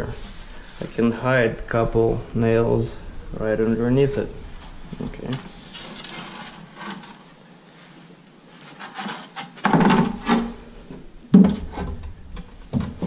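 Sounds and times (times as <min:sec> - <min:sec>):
quiet shuffling: 0:00.0 - 0:09.2
wooden scrape: 0:00.0 - 0:13.0.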